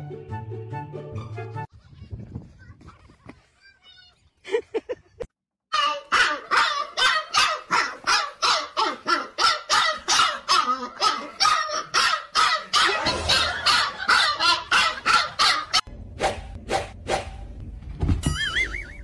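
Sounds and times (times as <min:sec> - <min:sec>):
dog barking: 0:05.8 - 0:15.8.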